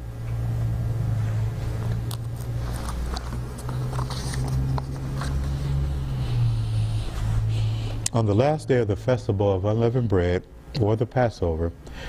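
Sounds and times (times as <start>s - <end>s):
low hum: 0.0s - 10.7s
paper rustling and clicking: 2.0s - 5.5s.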